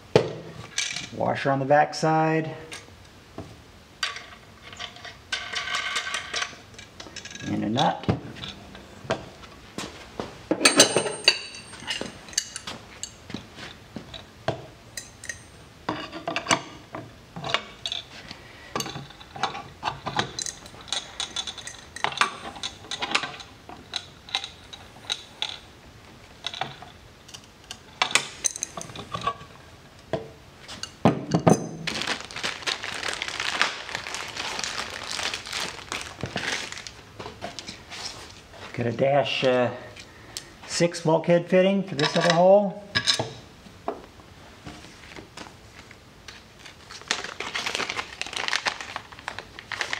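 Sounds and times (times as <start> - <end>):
metal parts clinking and tapping: 4.0 - 7.6, 10.6 - 13.5, 14.9 - 16.8, 18.8 - 25.6, 26.4 - 29.5, 42.0 - 43.4
dense rustling noise: 31.8 - 38.9.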